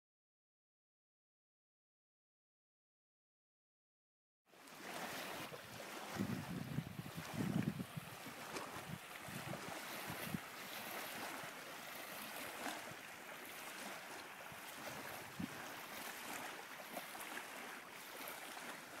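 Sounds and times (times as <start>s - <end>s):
small waves lapping and splashing: 4.5s - 19.0s
wind thumps on microphone: 6.0s - 10.5s, 14.8s - 15.7s.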